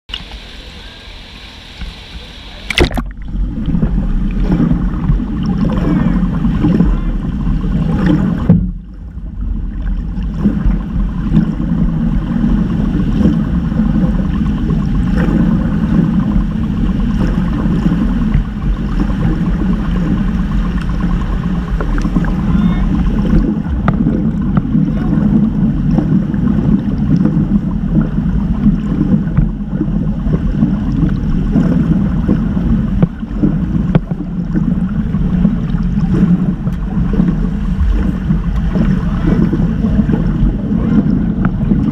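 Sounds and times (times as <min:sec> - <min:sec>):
underwater rumble and sloshing: 0:00.1 - 0:41.9
sharp splash: 0:02.6 - 0:08.7.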